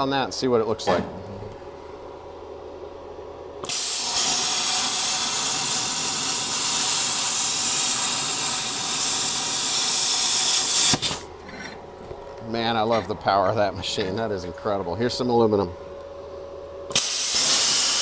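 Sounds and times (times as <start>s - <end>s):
plasma cutter hissing: 3.6s - 11.3s, 16.9s - 18.0s.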